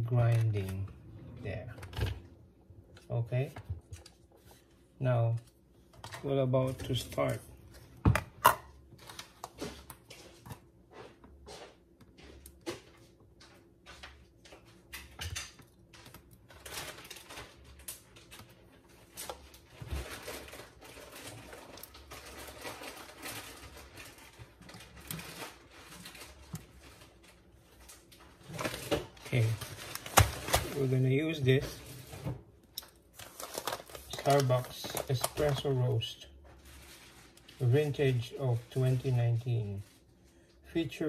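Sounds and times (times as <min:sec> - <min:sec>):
electrical cord being handled: 0:02.9 - 0:08.0, 0:08.9 - 0:40.1
paper rustling: 0:33.2 - 0:40.4.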